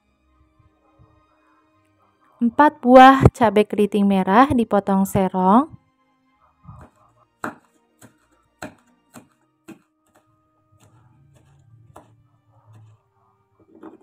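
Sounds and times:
faint background music: 0.0s - 14.0s
knife knocking on cutting board: 6.8s - 9.9s.

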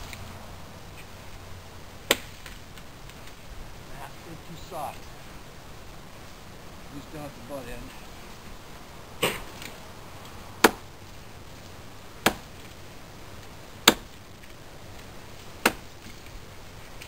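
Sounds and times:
chopping strikes on wood: 2.1s - 2.6s, 10.6s - 10.8s, 12.2s - 12.5s, 13.8s - 14.1s, 15.6s - 15.8s.

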